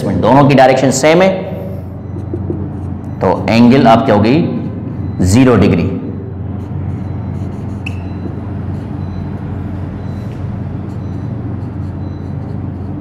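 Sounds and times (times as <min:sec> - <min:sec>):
steady low hum: 0:00.0 - 0:13.0
marker squeaking on whiteboard: 0:01.6 - 0:03.5, 0:06.5 - 0:13.0.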